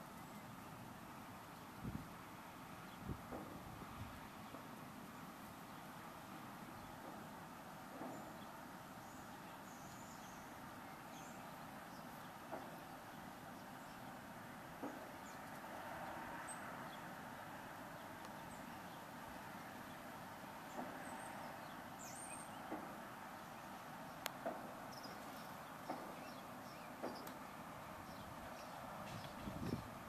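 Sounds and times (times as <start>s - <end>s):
low rush of background noise: 0.0s - 30.0s.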